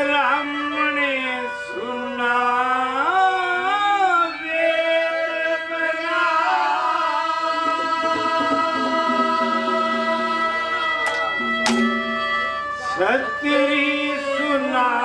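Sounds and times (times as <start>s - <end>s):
man singing long held notes: 0.0s - 15.0s
sustained instrumental notes: 7.5s - 14.6s.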